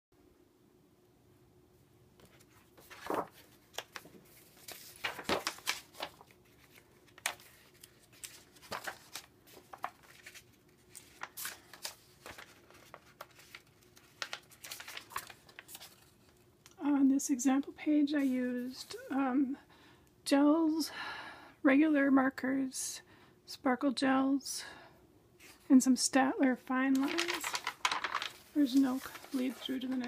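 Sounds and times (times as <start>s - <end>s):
book pages turning: 2.2s - 16.5s, 26.8s - 30.0s.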